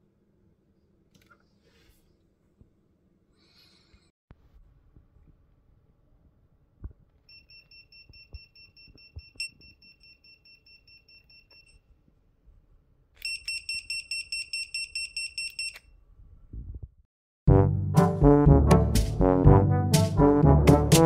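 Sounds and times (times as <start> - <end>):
brass music: 17.5 - 21.0.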